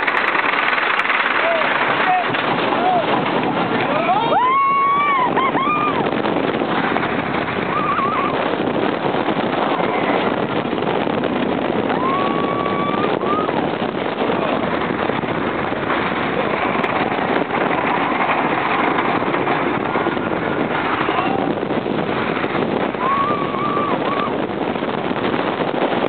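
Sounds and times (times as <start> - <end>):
roller coaster wheels rumbling on track: 0.0 - 26.0.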